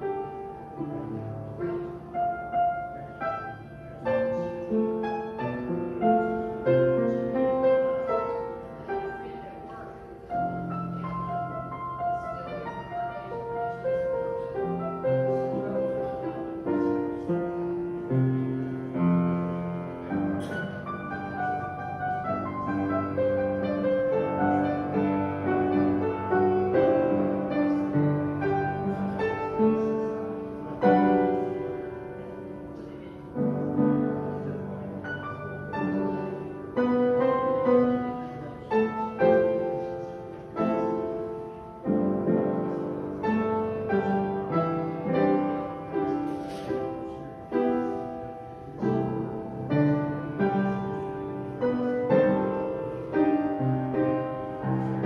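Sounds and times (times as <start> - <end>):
piano playing a hymn: 0.0 - 55.0.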